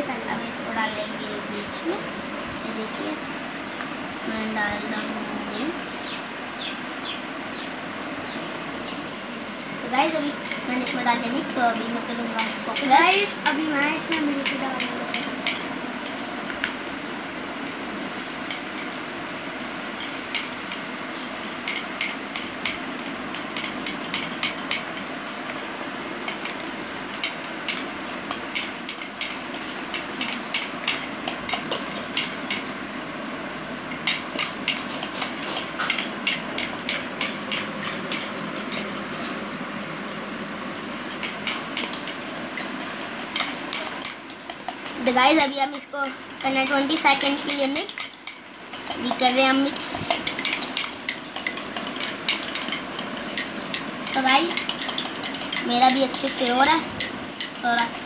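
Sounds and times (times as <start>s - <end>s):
spoons clinking against ceramic mugs: 10.4s - 17.0s, 18.5s - 25.1s, 26.3s - 32.7s, 33.9s - 58.0s.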